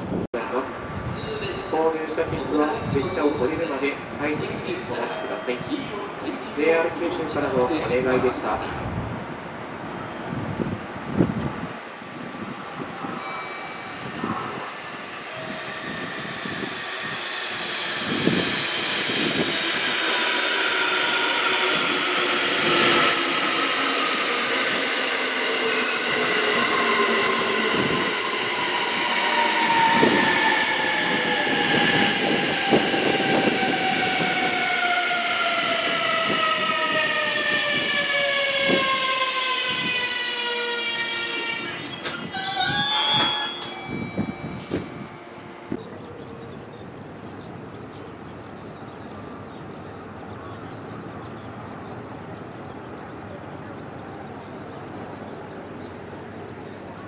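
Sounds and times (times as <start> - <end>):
wheels rumbling on rail: 8.5 - 35.1, 41.7 - 57.0
train motor whine falling: 13.5 - 45.8.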